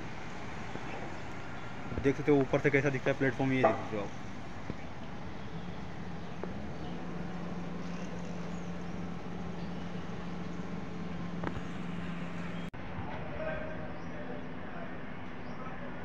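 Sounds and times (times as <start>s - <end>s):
steady background noise: 0.0s - 16.0s
low hum: 3.2s - 15.4s.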